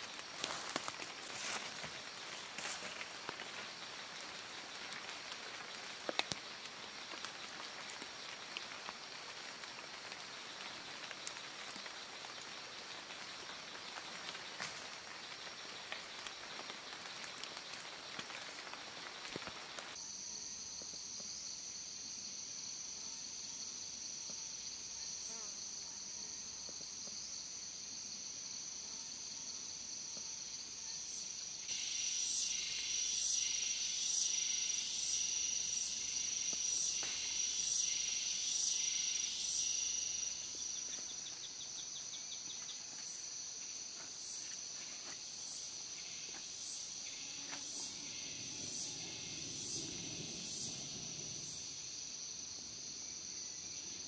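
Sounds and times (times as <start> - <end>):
insects shrilling: 0.0 - 20.0, 31.7 - 51.9
pulsing insect call: 0.0 - 20.9, 27.4 - 54.0.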